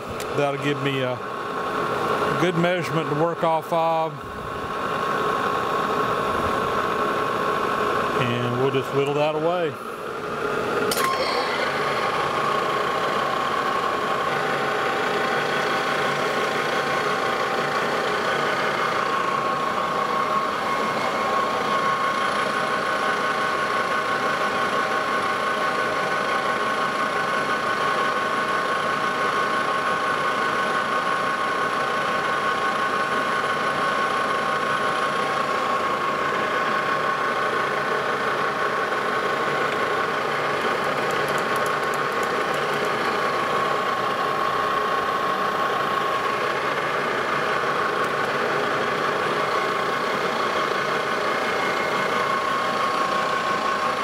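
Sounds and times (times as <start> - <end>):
lathe whining: 0.0 - 54.0.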